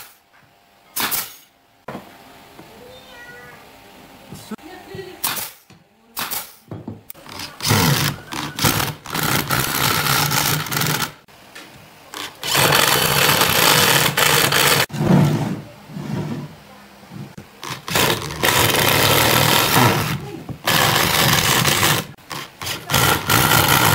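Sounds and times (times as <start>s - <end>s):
cordless drill driving screws: 12.2s - 14.9s, 17.6s - 23.9s.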